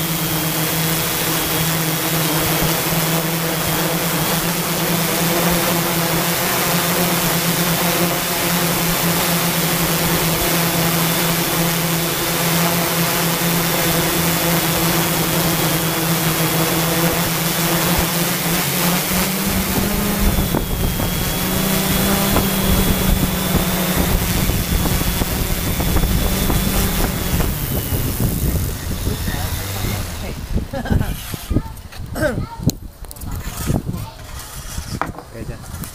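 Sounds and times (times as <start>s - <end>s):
drone propellers whirring: 0.0s - 31.9s
rough low rumble: 22.6s - 31.8s.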